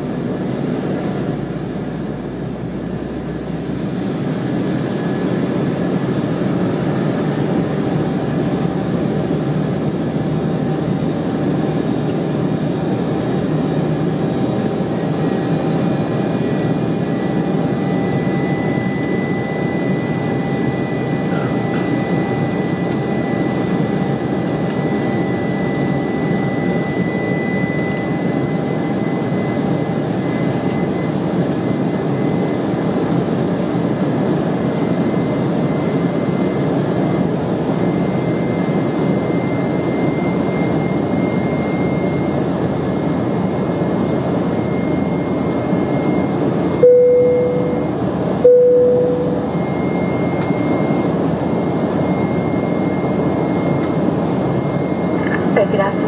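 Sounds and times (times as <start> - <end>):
jet engine and airflow rush: 0.0 - 56.0
thin high whine: 44.5 - 56.0.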